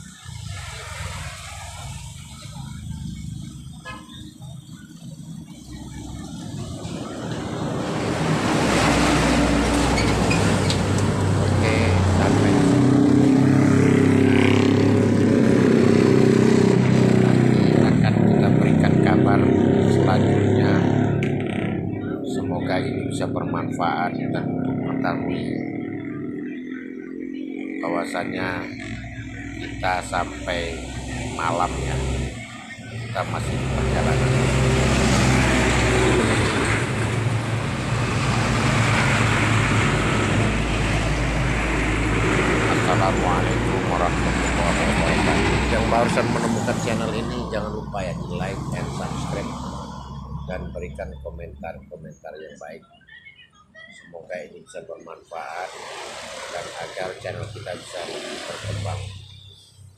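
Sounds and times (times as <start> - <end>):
highway traffic rushing by: 0.0 - 59.9
low engine hum: 27.6 - 52.6.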